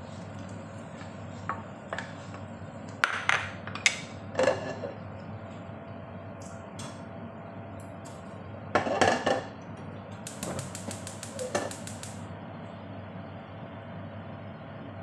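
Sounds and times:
rapid sharp clicks: 10.2 - 12.2.

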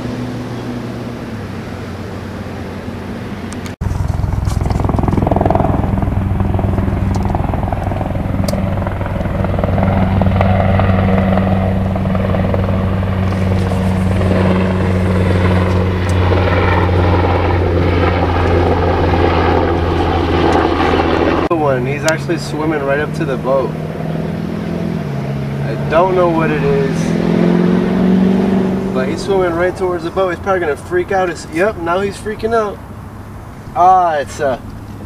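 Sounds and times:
motor drone: 0.0 - 30.8.

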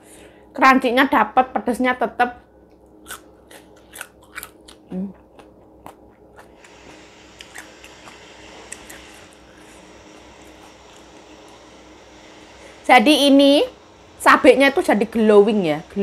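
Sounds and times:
crunching and chewing fried food: 2.7 - 12.5.

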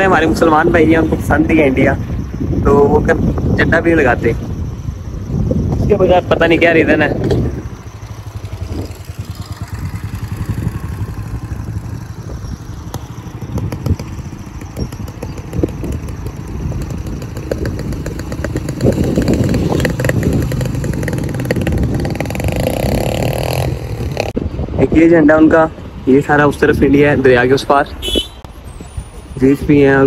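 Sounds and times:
motorcycle engine passing by: 6.7 - 24.4.

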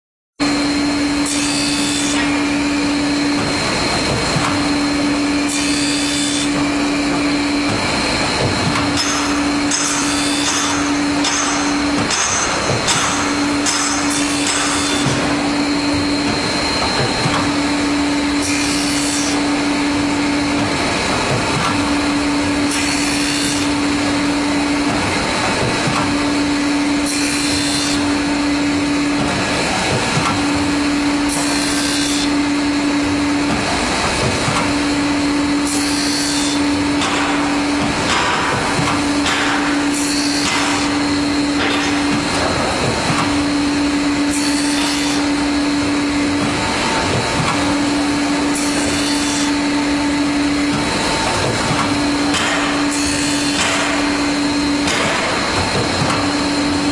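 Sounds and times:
machine motor whirring: 0.4 - 56.9
grinding wheel hissing bursts: 1.0 - 3.9, 4.6 - 8.4, 9.1 - 21.0, 21.8 - 24.8, 26.1 - 29.1, 30.4 - 34.0, 34.7 - 37.0, 39.0 - 41.6, 43.3 - 47.0, 47.7 - 51.2, 52.0 - 55.6.

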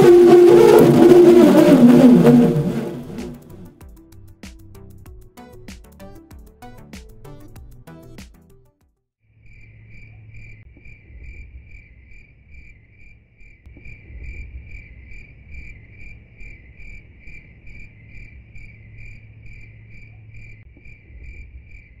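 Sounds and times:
cricket-like chirping trill: 9.4 - 22.0.

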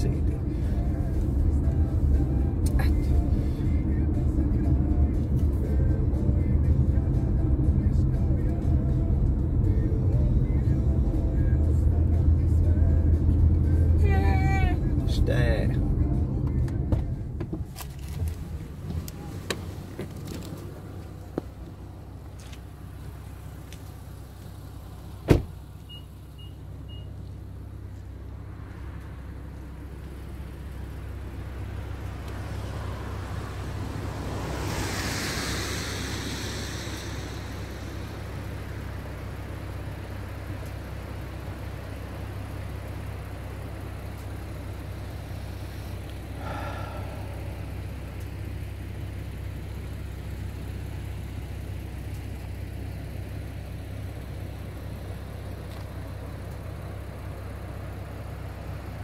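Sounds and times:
car engine and road hum: 0.0 - 59.0
broad hiss: 33.6 - 39.6.

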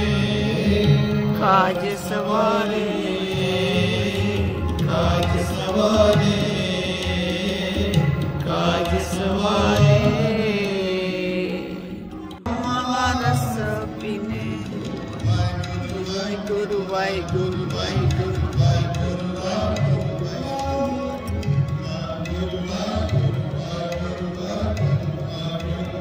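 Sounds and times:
person singing a hymn: 0.0 - 14.9
held instrumental accompaniment: 0.0 - 26.0.

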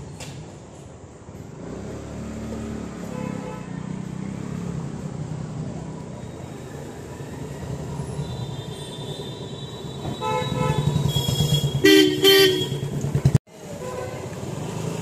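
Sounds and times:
vehicle horn honking: 8.3 - 13.0.

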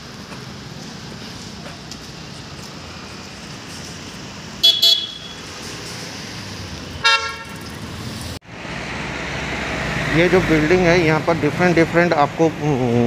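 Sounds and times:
street traffic hum: 0.0 - 13.0
vehicle horns honking: 4.6 - 5.6, 7.0 - 7.6.

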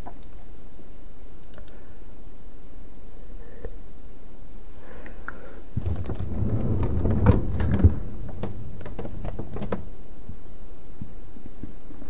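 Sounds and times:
plastic drawers clicking and knocking: 5.8 - 9.9.

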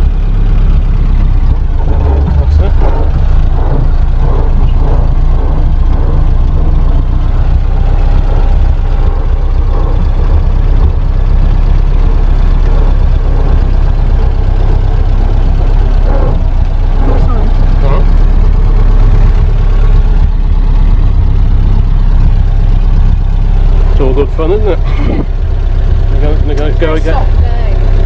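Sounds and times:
truck engine running: 0.0 - 28.0.

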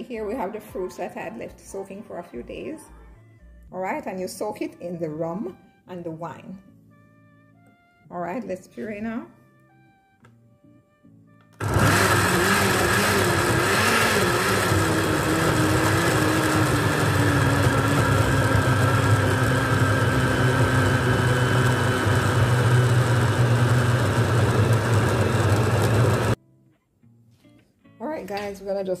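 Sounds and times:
blender motor running: 11.6 - 26.4.

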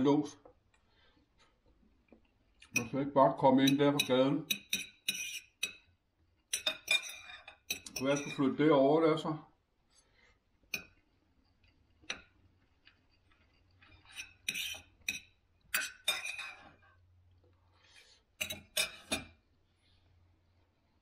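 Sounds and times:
cutlery clinking on a plate: 3.6 - 5.9, 6.5 - 8.4, 11.6 - 16.7, 18.4 - 19.4.

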